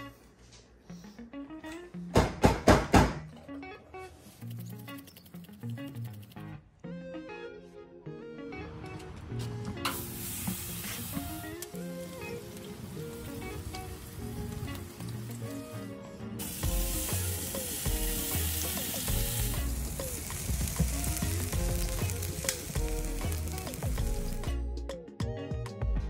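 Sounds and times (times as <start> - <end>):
background music: 0.0 - 26.0
meat sizzling on grill: 9.9 - 24.6.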